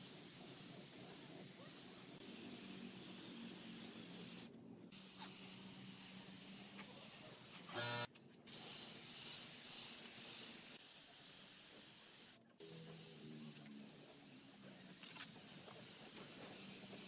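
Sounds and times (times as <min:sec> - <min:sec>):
spray gun hissing: 0:08.5 - 0:12.4.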